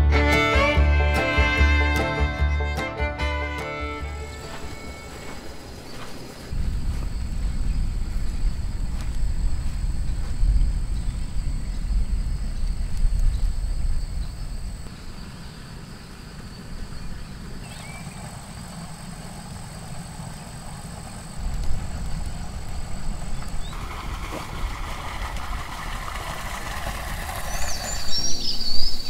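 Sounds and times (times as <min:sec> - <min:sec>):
low wind rumble: 0:03.3 - 0:29.0
high-pitched insect tones: 0:03.9 - 0:23.8
bird chirp: 0:10.0 - 0:23.8, 0:27.2 - 0:29.0.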